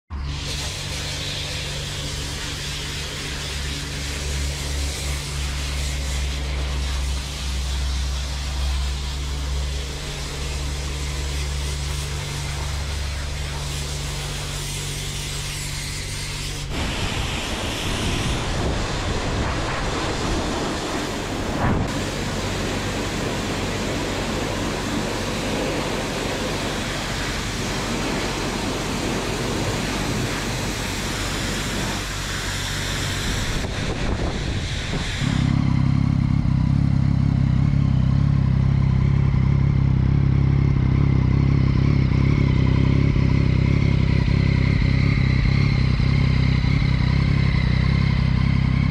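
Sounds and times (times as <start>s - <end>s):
pressure washer spray hissing: 0.2s - 36.5s
motorcycle engine idling: 1.8s - 15.5s, 35.4s - 48.9s.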